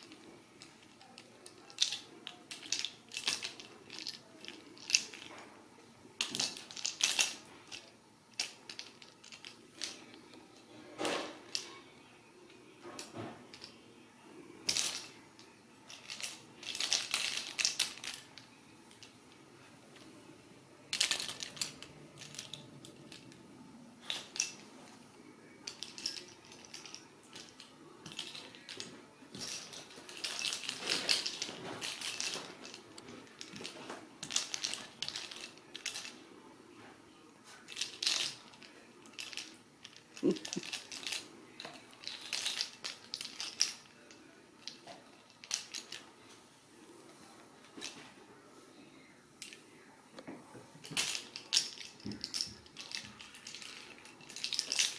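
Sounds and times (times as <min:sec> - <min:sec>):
plastic ball rattling: 0:00.0 - 0:05.3, 0:06.1 - 0:10.4, 0:14.6 - 0:19.2, 0:20.9 - 0:23.4, 0:24.0 - 0:24.7, 0:25.6 - 0:36.2, 0:37.6 - 0:46.0, 0:50.8 - 0:54.9.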